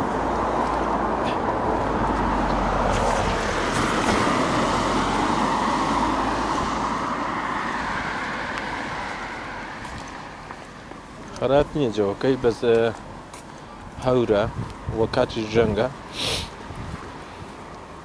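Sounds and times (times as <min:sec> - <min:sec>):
car passing on wet road: 0:00.0 - 0:10.6.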